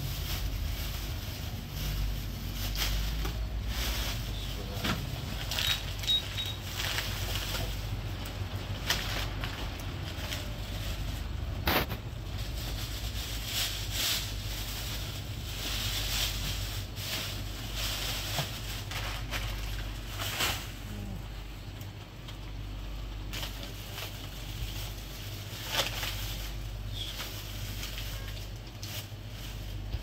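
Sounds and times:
plastic bags rustling: 0:00.0 - 0:30.0
steady low hum: 0:00.0 - 0:30.0.

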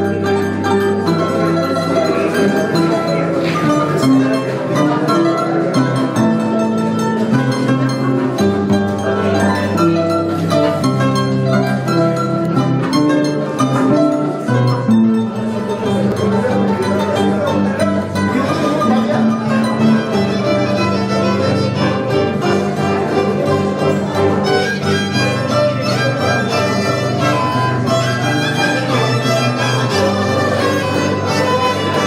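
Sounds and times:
bowed violin melody: 0:00.0 - 0:32.0
plucked harp notes: 0:00.0 - 0:32.0.

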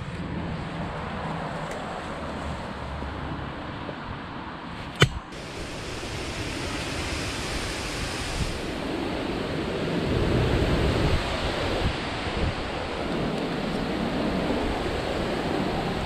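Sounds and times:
wind rushing on microphone: 0:03.3 - 0:16.0
sharp click: 0:04.8 - 0:05.3.

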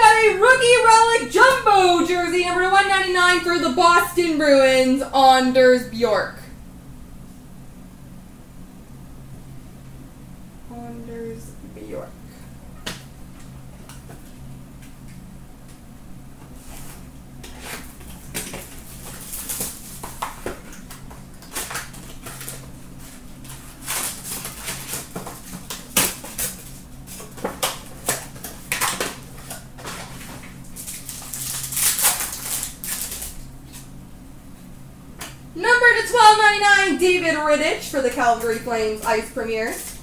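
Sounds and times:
steady low hum: 0:00.0 - 0:40.0
card packs crinkling and rustling: 0:16.5 - 0:33.9.

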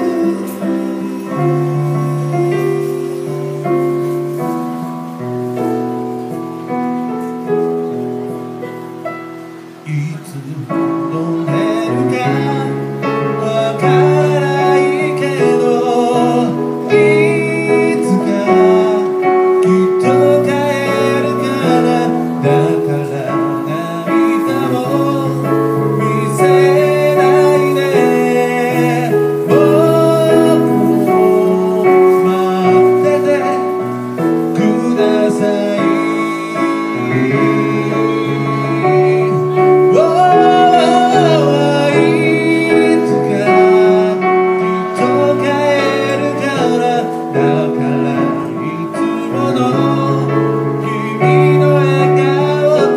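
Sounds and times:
electronic keyboard chords: 0:00.0 - 0:52.9
person singing: 0:00.0 - 0:52.9.

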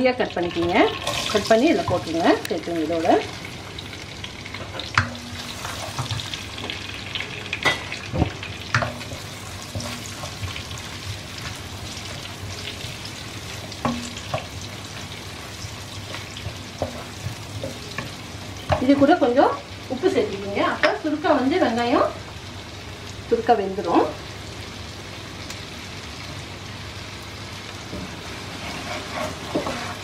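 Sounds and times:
onions sizzling in a pan: 0:00.0 - 0:30.0
wooden spatula scraping a pan: 0:13.5 - 0:19.1, 0:28.2 - 0:30.0.

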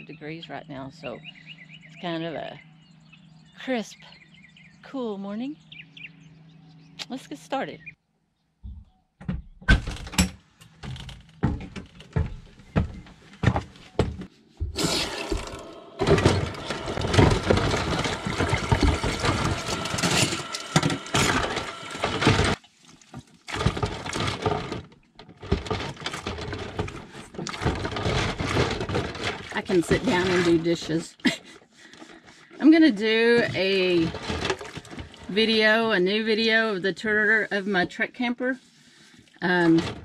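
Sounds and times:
knocks and clatters: 0:08.6 - 0:30.5.

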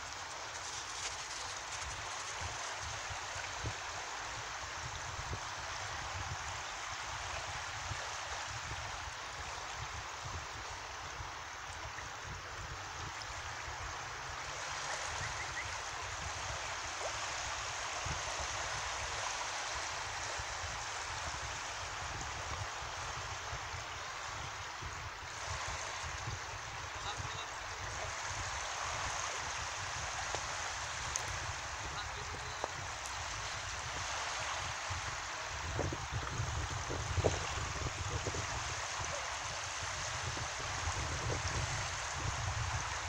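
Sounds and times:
gentle surf on shore: 0:00.0 - 0:43.0.

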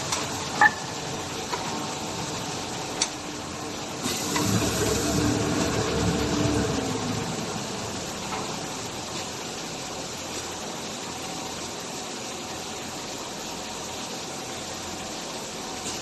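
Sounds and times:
packing machine hissing: 0:04.0 - 0:05.6.

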